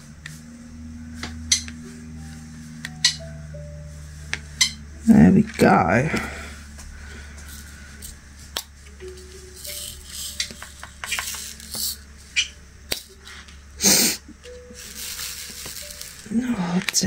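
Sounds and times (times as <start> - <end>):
rattle of loose plastic beads: 9.6 - 12.0, 14.8 - 16.4.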